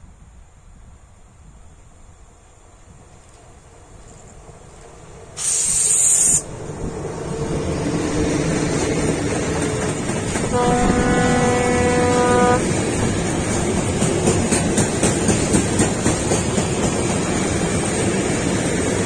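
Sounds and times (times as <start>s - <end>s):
train wheels rumbling on rail: 2.2s - 19.0s
locomotive rushing past: 3.5s - 19.0s
train horn: 10.4s - 12.7s.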